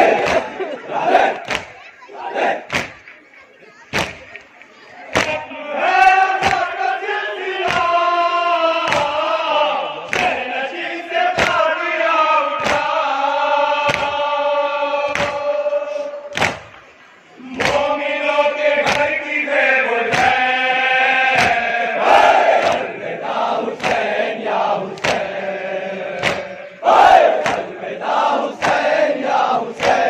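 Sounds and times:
men chanting in unison: 5.2 - 16.2, 17.4 - 30.0.

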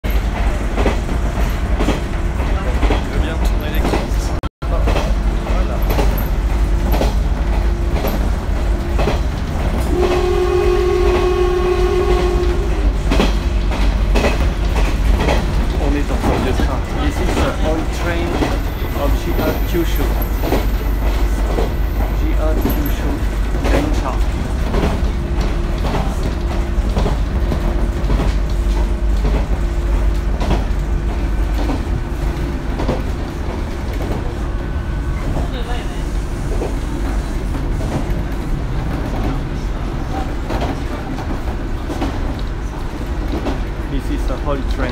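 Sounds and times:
wheel clacks over rail joints: 0.0 - 10.3, 12.2 - 34.4
railcar engine rumble: 0.0 - 44.9
train horn: 9.8 - 12.9.

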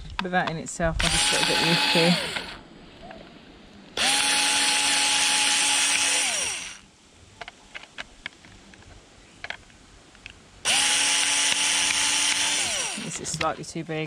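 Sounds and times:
electric screwdriver motor spinning: 1.0 - 2.6, 4.0 - 6.8, 10.7 - 13.5.

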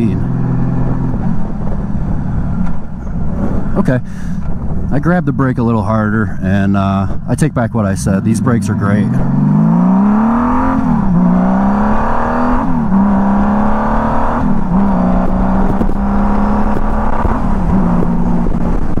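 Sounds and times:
motorcycle engine accelerating: 0.0 - 3.7, 8.2 - 19.0.

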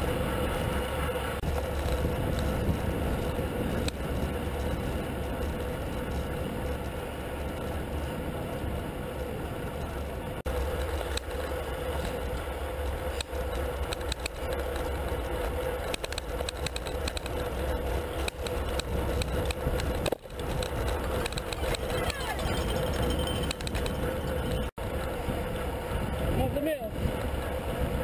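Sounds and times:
wind rush: 0.0 - 10.6
road noise: 0.0 - 28.0
bicycle clicks and rattles: 0.5 - 26.3.

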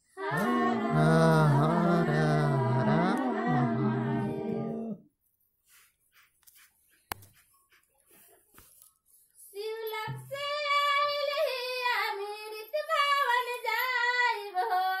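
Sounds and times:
high-pitched voice singing: 0.0 - 5.0.

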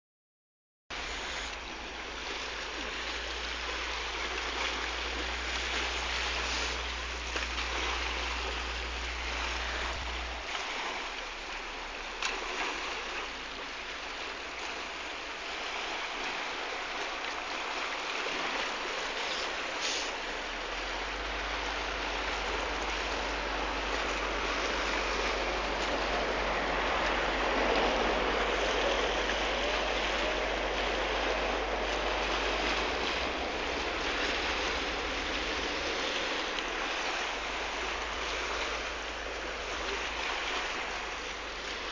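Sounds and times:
sea water rushing: 0.9 - 41.9
low hum: 15.0 - 41.9.

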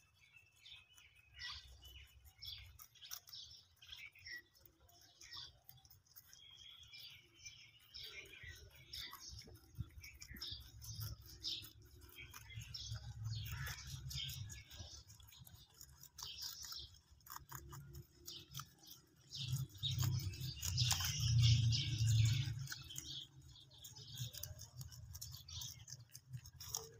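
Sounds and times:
rabbits munching grass: 0.0 - 26.9
small birds chirping: 0.0 - 26.9
low rumble: 19.7 - 23.4.

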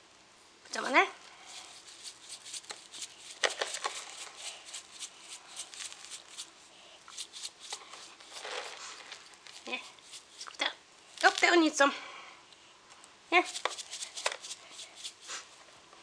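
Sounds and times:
sprinkles rattling in shaker: 1.4 - 6.5, 7.1 - 10.6, 11.2 - 11.7, 13.4 - 15.3
metal spoon scraping plastic tray: 1.5 - 6.5, 7.1 - 10.6.

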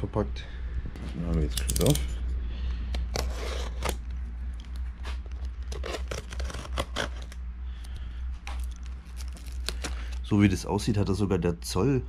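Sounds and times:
low steady hum: 0.0 - 12.0
packaging being cut and torn: 3.1 - 4.0, 5.3 - 7.4, 8.6 - 10.3.

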